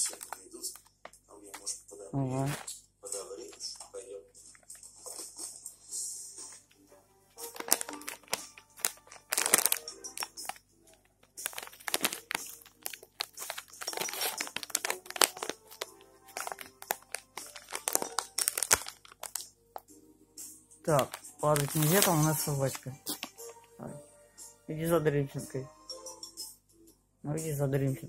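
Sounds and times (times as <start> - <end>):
plastic pouch crinkling: 0.0 - 0.9, 7.4 - 19.5, 20.9 - 23.6.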